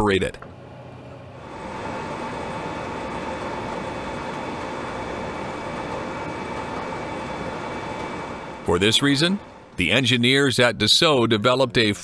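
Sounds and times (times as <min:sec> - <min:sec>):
jet engine drone: 0:00.8 - 0:10.5.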